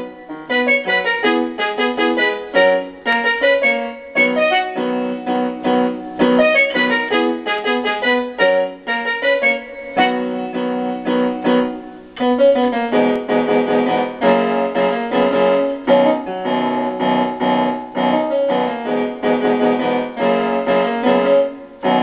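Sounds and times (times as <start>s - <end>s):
piano music: 0.0s - 22.0s.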